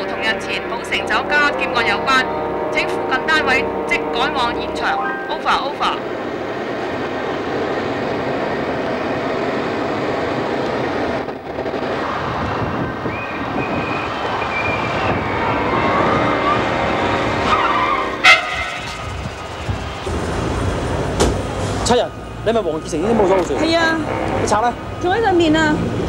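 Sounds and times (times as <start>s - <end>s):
tyres squealing: 13.2s - 19.1s.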